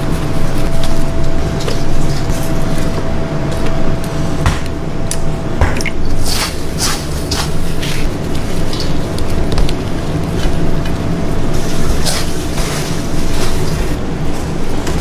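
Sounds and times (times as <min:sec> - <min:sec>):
gloved hands squishing ground meat: 0:00.0 - 0:04.4, 0:06.0 - 0:14.8
crunchy breadcrumb rustles: 0:06.2 - 0:14.9.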